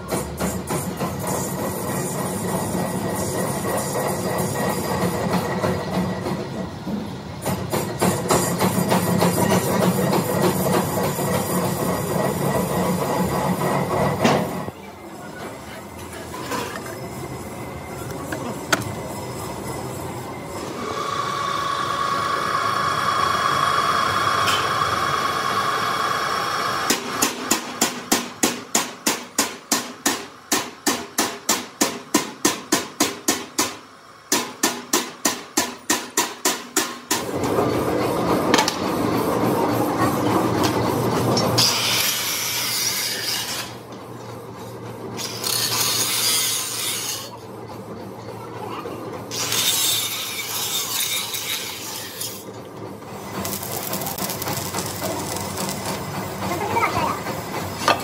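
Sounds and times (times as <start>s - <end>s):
angle grinder cutting steel: 18.3s - 27.2s, 41.6s - 43.8s, 45.2s - 47.4s, 49.3s - 52.6s, 53.2s - 56.4s
drill boring through steel: 19.0s - 27.1s, 45.2s - 47.4s, 49.3s - 52.5s, 53.3s - 56.1s.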